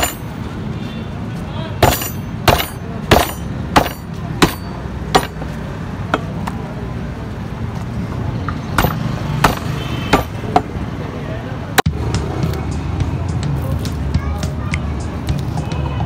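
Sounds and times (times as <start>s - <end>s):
cleaver chopping on wooden block: 1.8s - 5.5s, 8.8s - 10.7s.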